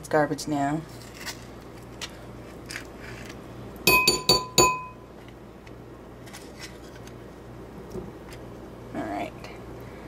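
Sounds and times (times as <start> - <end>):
metal spoon clinking on ceramic bowl: 3.9 - 5.0.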